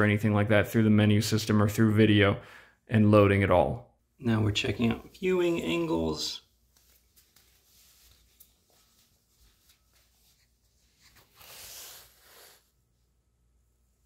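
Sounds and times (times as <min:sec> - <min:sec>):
soft rustle: 0:06.4 - 0:14.0.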